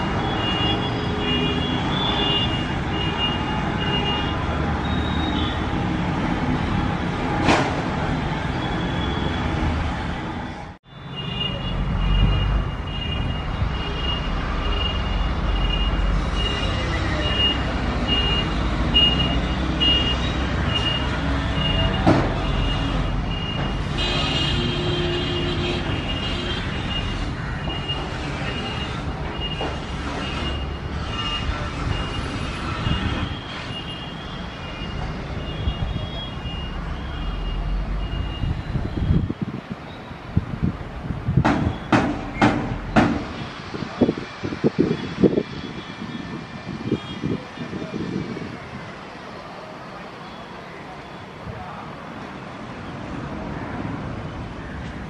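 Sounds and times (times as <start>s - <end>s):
sharp knock: 41.4s - 43.4s.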